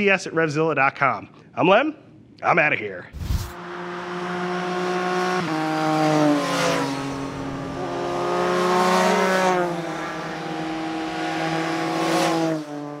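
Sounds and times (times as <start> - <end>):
motorcycles passing by: 3.3 - 13.0.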